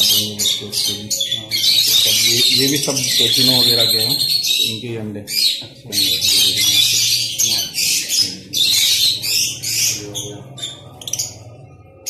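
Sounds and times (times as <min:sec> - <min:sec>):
lovebirds screeching and chattering: 0:00.0 - 0:12.0.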